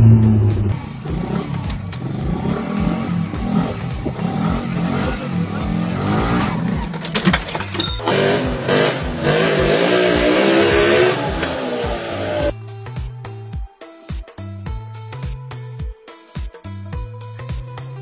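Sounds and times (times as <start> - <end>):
small motorcycle engine revving: 0.0 - 7.0, 8.0 - 12.5
clatter of knocks: 6.6 - 8.2.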